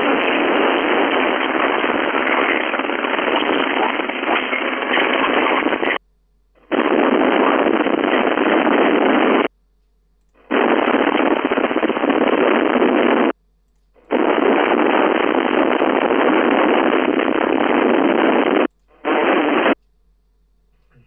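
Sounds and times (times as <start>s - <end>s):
radio receiver hiss: 0.0s - 6.0s, 6.6s - 9.6s, 10.2s - 19.8s.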